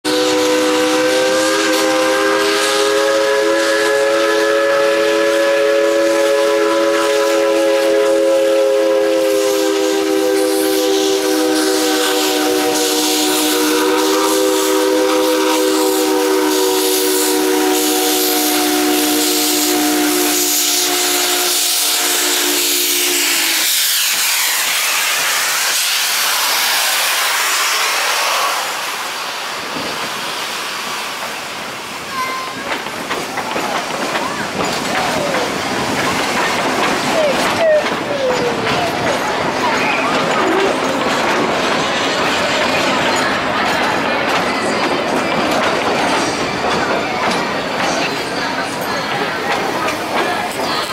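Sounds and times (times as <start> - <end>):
steam locomotive whistle: 0.0 - 29.6
steam hissing: 0.1 - 50.9.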